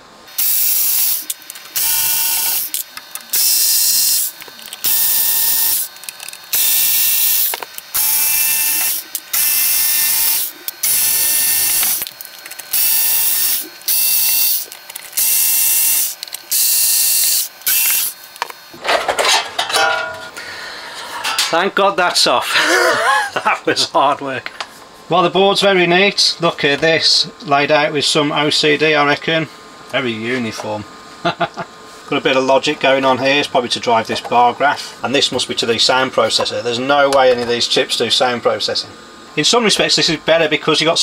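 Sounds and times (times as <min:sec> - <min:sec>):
electric screwdriver whining: 0:00.3 - 0:18.8.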